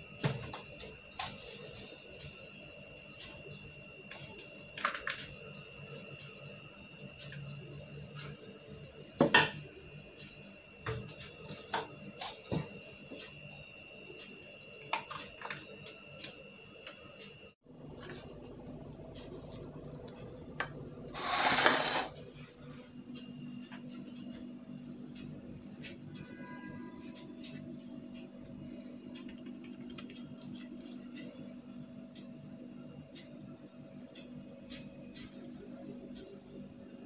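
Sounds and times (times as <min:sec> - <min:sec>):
short scraping noise: 0:21.1 - 0:22.2.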